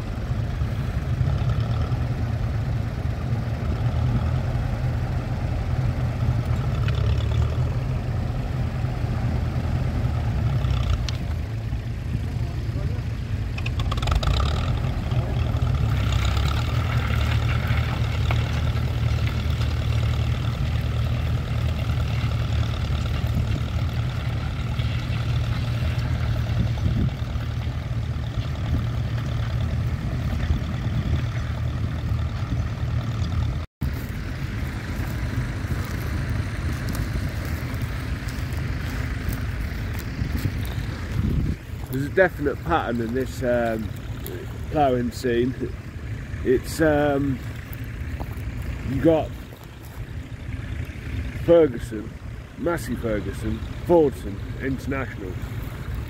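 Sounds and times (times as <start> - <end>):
tractor engine running under load: 0.0 - 56.0.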